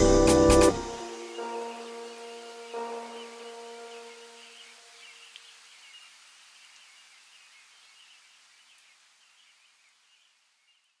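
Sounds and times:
background music: 0.0 - 4.9
soft outdoor hiss: 0.0 - 11.0.

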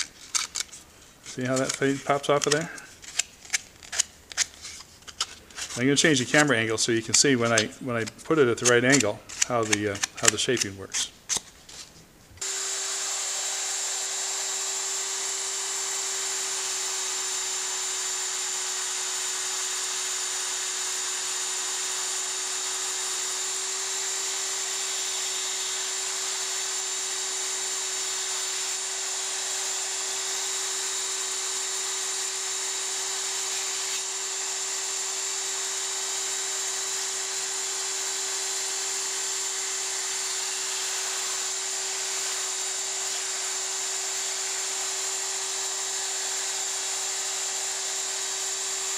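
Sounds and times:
plastic pressed against sanding belt: 0.0 - 12.0
belt sander whining hum: 12.4 - 48.9.

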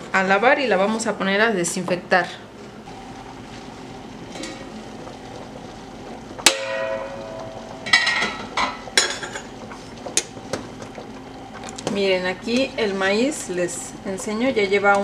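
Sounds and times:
pot boiling with steady hiss: 0.0 - 15.0
metal pot lid clanging: 6.4 - 9.5.

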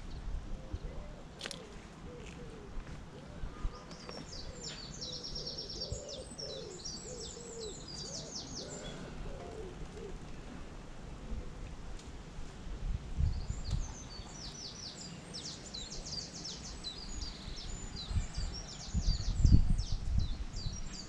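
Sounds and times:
bird cooing: 0.6 - 10.4
bird trilling song: 3.7 - 9.5.

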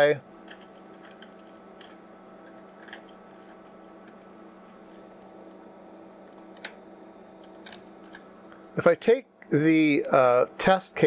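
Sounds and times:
faint steady hum: 0.0 - 11.0
metal cable connectors clicking: 0.5 - 4.2, 7.4 - 8.2.

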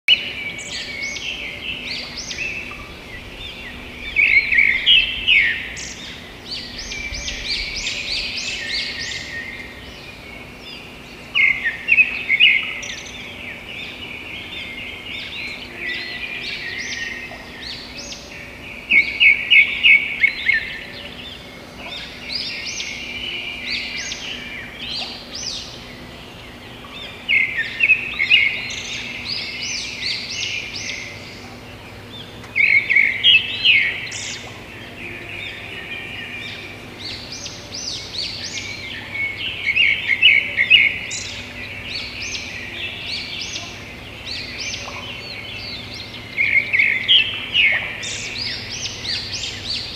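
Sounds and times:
small birds chirping: 0.1 - 49.9.

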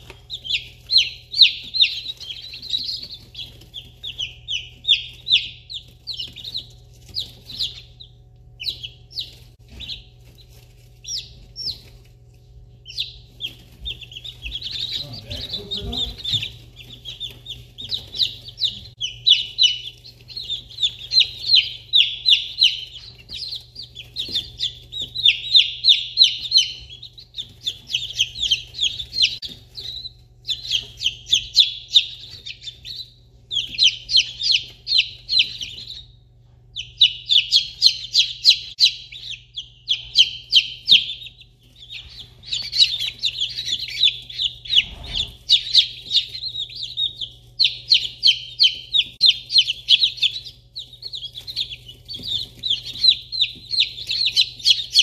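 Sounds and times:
chicks peeping: 0.0 - 55.0.

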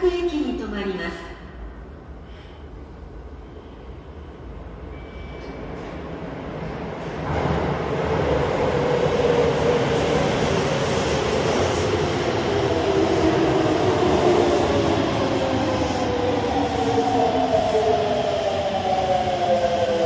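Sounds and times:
train rumbling over rails: 5.7 - 20.0.

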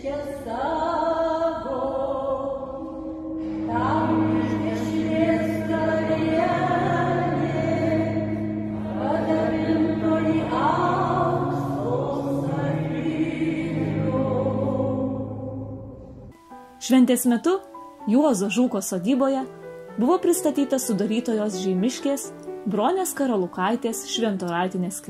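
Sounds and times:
voices singing a psalm: 0.0 - 16.3
held low chords: 2.8 - 16.7.

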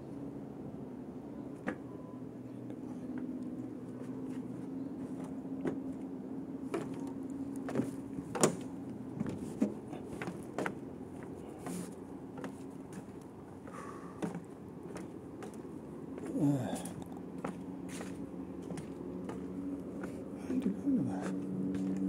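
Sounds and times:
steady low hum: 0.0 - 22.0
footsteps on wooden boardwalk: 6.7 - 22.0.

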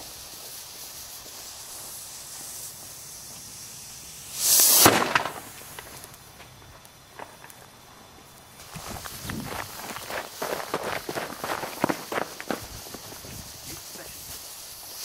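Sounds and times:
rocket motor hiss: 0.0 - 15.0
sharp bang: 4.4 - 5.6.

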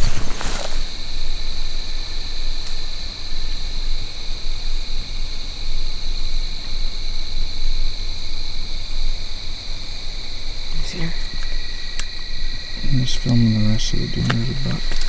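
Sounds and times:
crickets and insects buzzing: 0.0 - 15.0.

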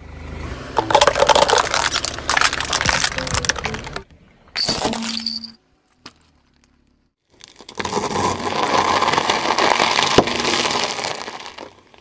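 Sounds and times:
tyre crushing dry noodles: 7.3 - 12.0.

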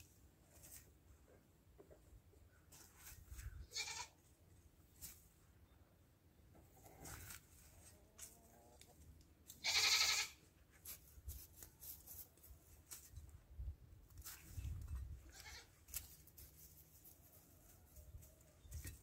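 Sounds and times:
goat bleating: 3.7 - 4.2, 9.5 - 10.4, 15.2 - 15.8
hands rustling in mulch and soil: 6.8 - 9.2, 10.6 - 19.0.

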